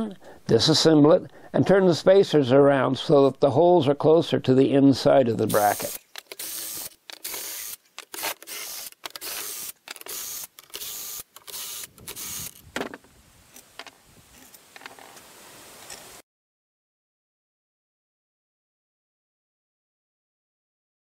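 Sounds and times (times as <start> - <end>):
cordless drill bursts: 5.5 - 12.6
metal parts clinking: 5.7 - 12.7.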